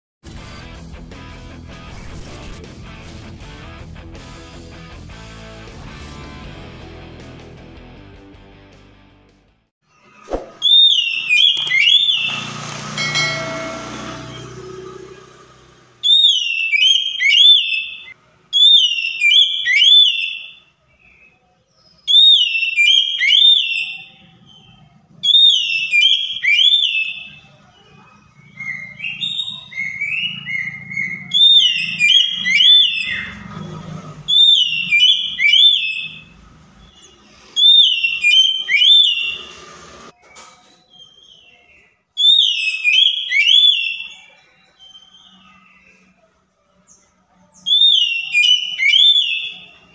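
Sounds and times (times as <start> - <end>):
harsh noise: 0.2 - 7.6
bird singing whistled phrases: 10.6 - 12.4, 16.0 - 27.4, 28.4 - 33.4, 40.2 - 46.0, 47.6 - 49.9.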